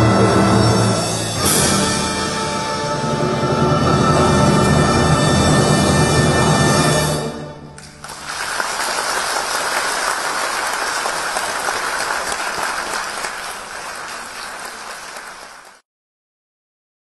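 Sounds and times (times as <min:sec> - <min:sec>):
audience applauding: 0:07.8 - 0:15.8.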